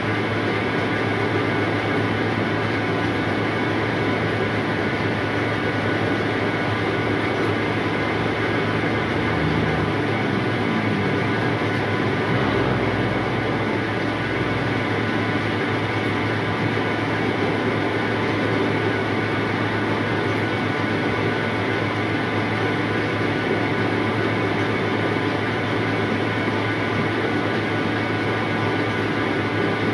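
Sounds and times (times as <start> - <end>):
sorting machine droning: 0.0 - 29.9.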